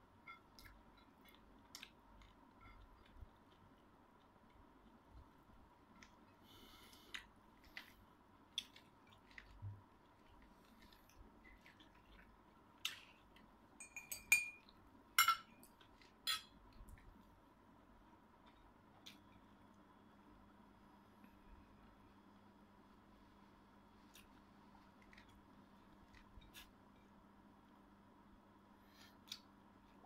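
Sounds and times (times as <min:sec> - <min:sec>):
tableware clinking: 0:13.8 - 0:15.6.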